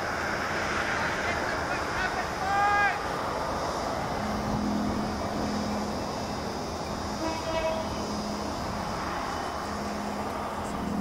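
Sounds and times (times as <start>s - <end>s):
diesel locomotive engine drone: 0.0s - 11.0s
locomotive horn toot: 7.1s - 8.2s.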